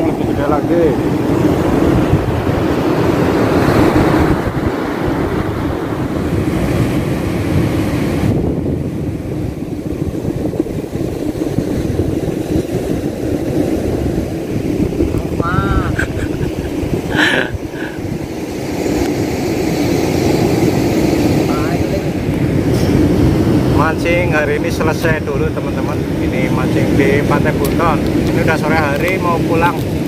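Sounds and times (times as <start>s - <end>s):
surf breaking on beach: 0.0s - 30.0s
wind buffeting microphone: 0.0s - 30.0s.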